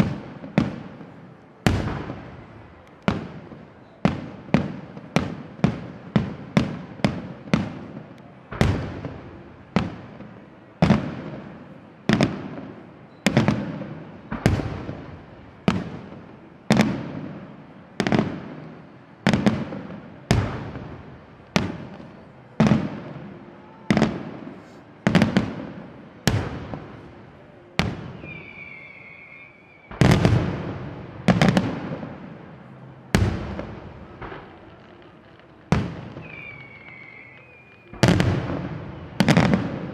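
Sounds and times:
firework whistling tone: 26.2 - 31.7, 33.3 - 39.9.

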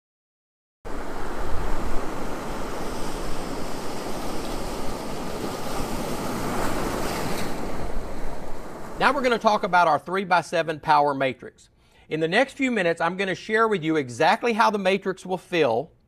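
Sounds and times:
steady rushing noise: 0.9 - 9.9.

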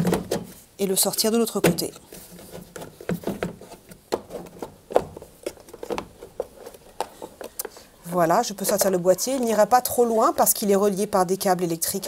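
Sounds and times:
plastic clicks and knocks: 2.5 - 7.8.

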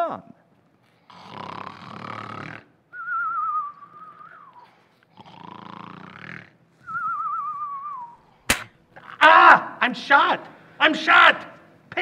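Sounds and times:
cartoon rasping snore: 1.1 - 2.8, 5.1 - 6.6
wavering falling whistle: 3.0 - 4.7, 6.8 - 8.2.

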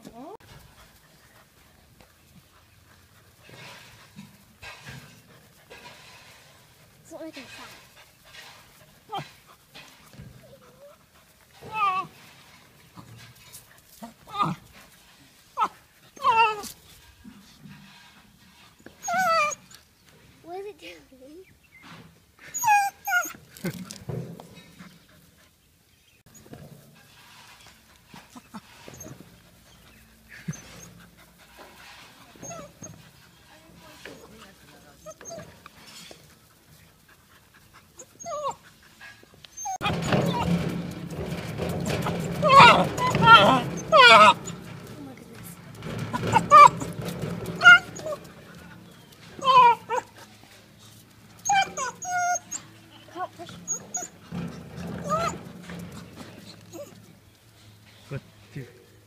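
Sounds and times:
dog whining and yelping: 11.6 - 12.2, 15.6 - 16.8, 19.0 - 19.8, 22.5 - 23.4, 32.3 - 33.0, 35.0 - 35.7, 38.0 - 40.6, 42.0 - 44.6, 46.1 - 48.3, 48.9 - 50.2, 51.4 - 55.5, 56.5 - 57.0.

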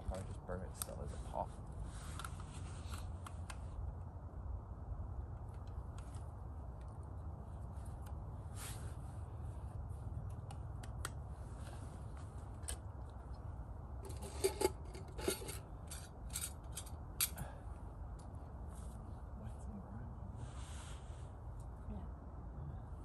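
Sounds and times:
rubbing and scraping: 14.0 - 16.9.

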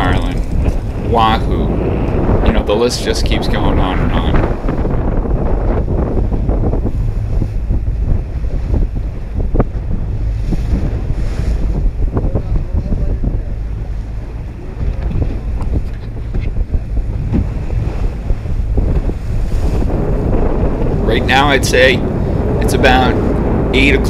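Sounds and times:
boat engine low rumble: 0.0 - 24.0
water splashing against hull: 0.0 - 24.0
wind buffeting microphone: 0.0 - 24.0.

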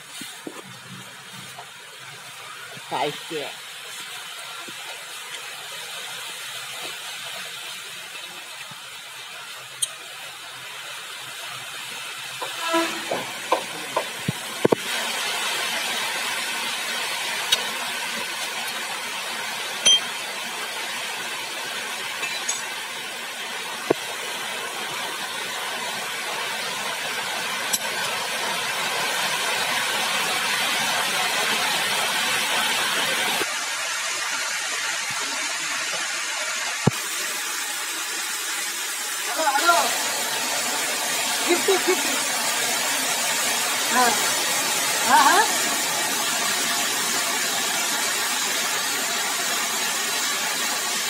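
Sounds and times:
sharp metallic clinks: 19.8 - 20.1.

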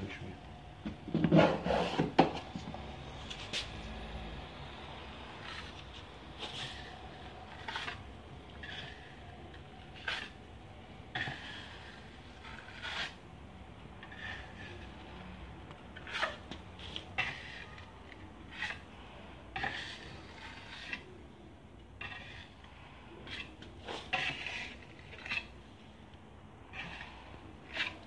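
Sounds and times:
putty knife scraping on wall: 1.2 - 2.4, 6.4 - 10.4, 11.1 - 13.2, 14.0 - 15.0, 16.0 - 18.9, 19.6 - 21.1, 22.0 - 22.6, 23.2 - 25.7, 26.7 - 28.0.

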